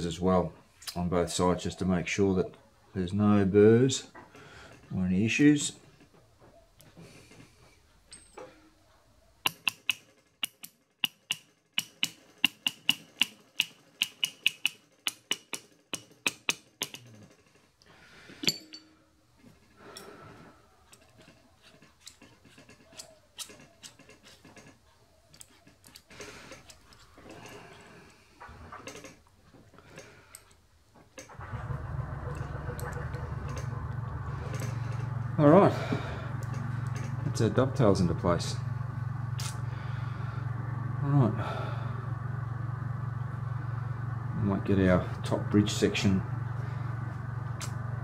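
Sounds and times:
metal parts scraping: 0:31.2 - 0:37.9.

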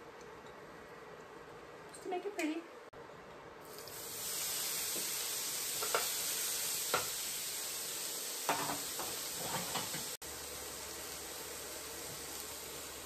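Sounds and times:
steak sizzling in pan: 0:03.6 - 0:13.0
dishes and utensils knocking: 0:08.5 - 0:10.1.

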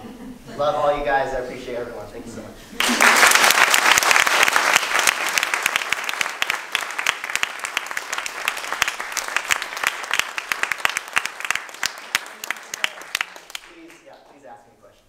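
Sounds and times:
audience applauding: 0:02.8 - 0:14.5.

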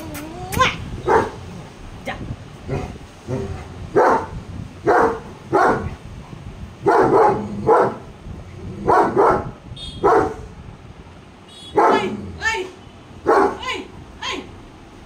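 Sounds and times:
dogs barking: 0:01.0 - 0:01.4, 0:02.7 - 0:06.0, 0:06.8 - 0:08.1, 0:08.8 - 0:10.4, 0:11.7 - 0:12.2, 0:13.2 - 0:13.6.

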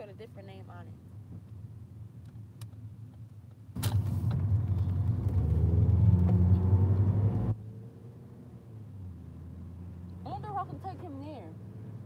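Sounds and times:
low vehicle rumble: 0:03.8 - 0:12.0.

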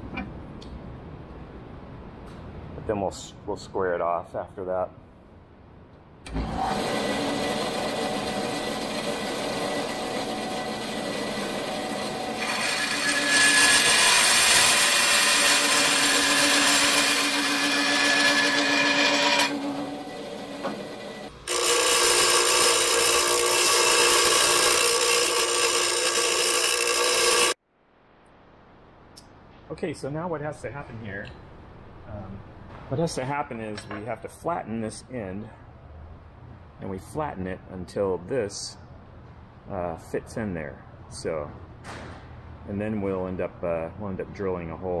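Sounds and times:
band saw cutting metal: 0:06.3 - 0:27.6
bench grinder running: 0:06.4 - 0:27.6.

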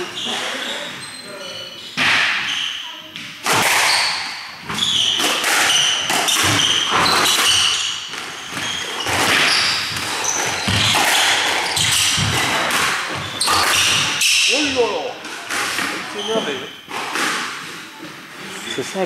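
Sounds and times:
shoes squeaking on wooden floor: 0:00.0 - 0:19.0
squash ball smacking racket and wall: 0:02.0 - 0:02.6, 0:03.2 - 0:16.1, 0:16.9 - 0:17.9.

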